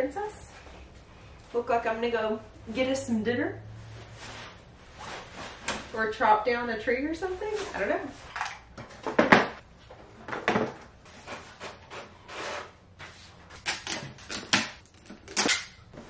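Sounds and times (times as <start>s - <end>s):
knocks and scrapes of items: 7.6s - 16.0s.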